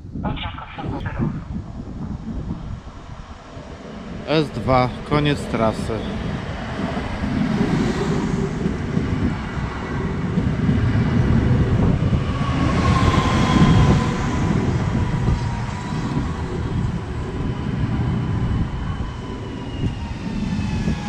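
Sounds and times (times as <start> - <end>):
train wheels rumbling on rails: 1.9 - 21.0.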